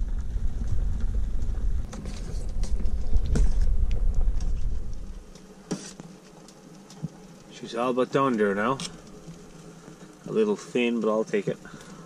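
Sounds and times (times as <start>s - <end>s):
low rumble: 0.0s - 5.4s.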